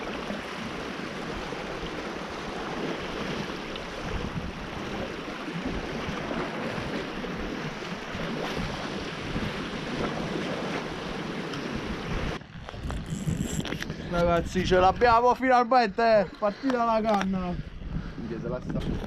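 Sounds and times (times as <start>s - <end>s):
surf washing against rocky shore: 0.0s - 14.8s
wind buffeting microphone: 0.0s - 19.0s.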